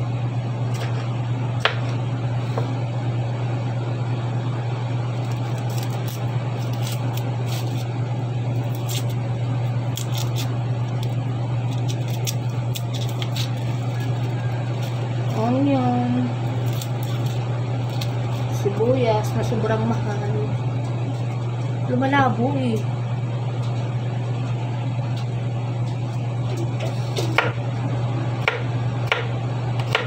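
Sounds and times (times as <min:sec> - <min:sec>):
low hum: 0:00.0 - 0:30.0
knife chopping on wooden board: 0:27.2 - 0:27.6, 0:28.4 - 0:30.0.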